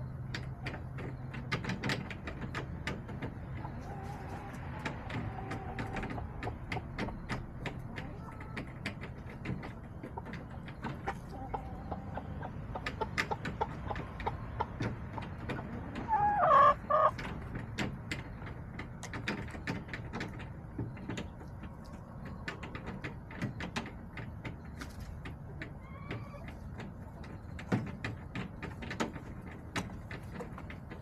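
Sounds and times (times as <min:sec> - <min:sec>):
hen calling: 0:15.6 - 0:17.2.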